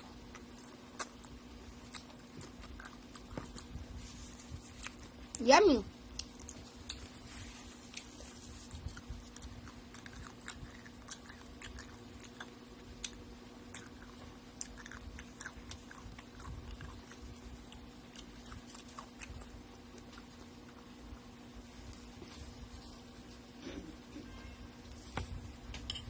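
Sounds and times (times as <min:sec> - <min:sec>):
chewing and biting chicken: 0:00.0 - 0:05.2, 0:06.1 - 0:21.2
steady low hum: 0:00.0 - 0:26.0.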